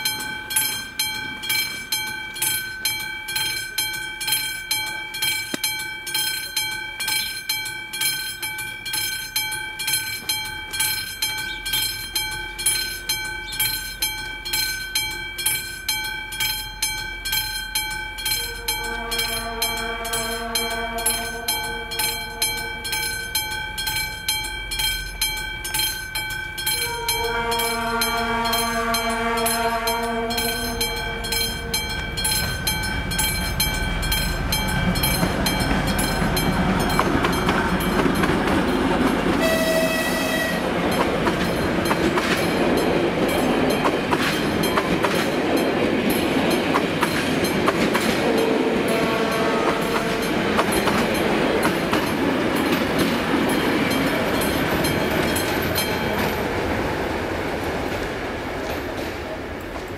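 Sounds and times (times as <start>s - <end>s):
level-crossing warning bell ringing: 0.0s - 58.0s
train rumble: 0.0s - 59.9s
train horn: 18.2s - 23.4s, 26.6s - 36.0s, 39.3s - 41.0s, 47.9s - 51.9s.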